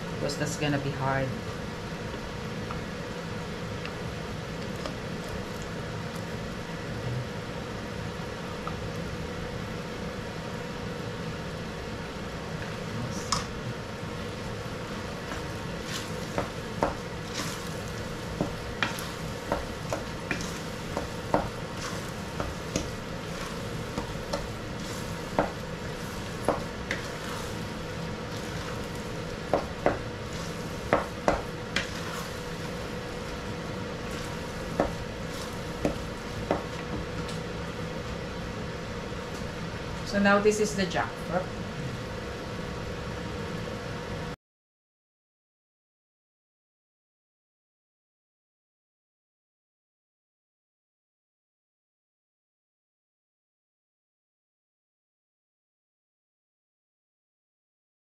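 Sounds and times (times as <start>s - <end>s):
utensil scraping a pan: 15.3s - 36.9s.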